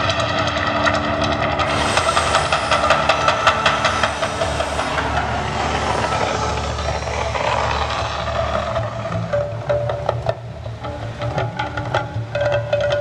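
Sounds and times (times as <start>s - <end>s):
loud steady fire rumble: 0.0s - 9.7s.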